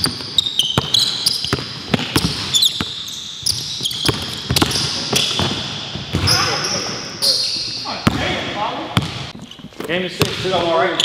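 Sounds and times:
sneaker squeaks: 0.0 - 8.3
basketball bouncing on hardwood: 3.8 - 6.3.

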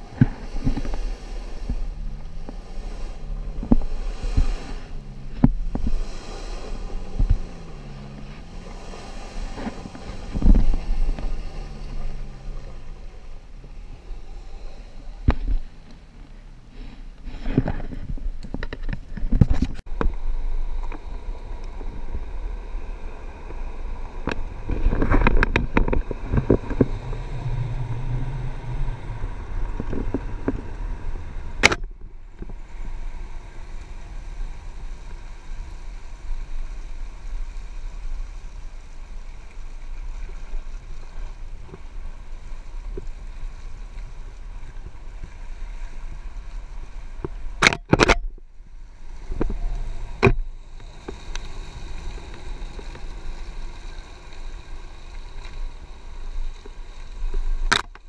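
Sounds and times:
branches scraping against camera: 0.0 - 13.4, 14.6 - 20.2, 24.2 - 34.2, 49.0 - 58.0
vehicle engine low rumble: 0.0 - 58.0.

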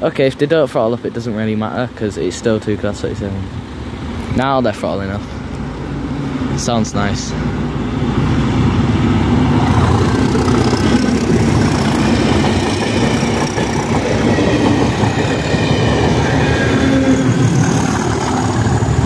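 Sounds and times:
diesel locomotives passing: 0.0 - 19.0
wheels clattering over rail joints: 8.1 - 19.0.

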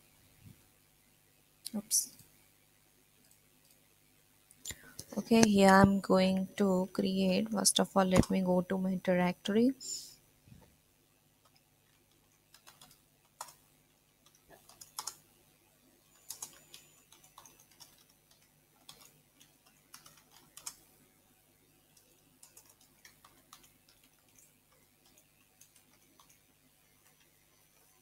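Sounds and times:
typing on computer keyboard: 8.1 - 8.5, 11.4 - 13.6, 14.2 - 15.2, 16.1 - 20.9, 22.0 - 28.0.

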